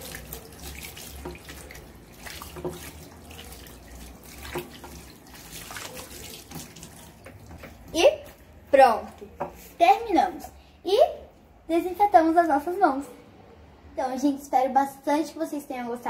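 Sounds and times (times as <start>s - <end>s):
hands rinsed under water: 0.0s - 7.9s
water splashes: 0.0s - 8.0s
tap running into sink: 2.4s - 3.0s.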